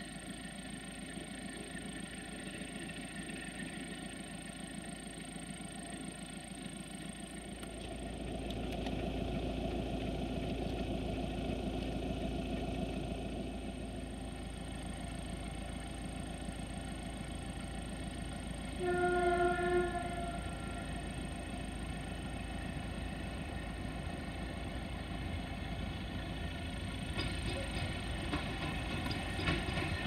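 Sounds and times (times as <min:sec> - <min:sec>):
diesel locomotive droning: 0:00.0 - 0:30.0
locomotive horn: 0:18.7 - 0:21.1.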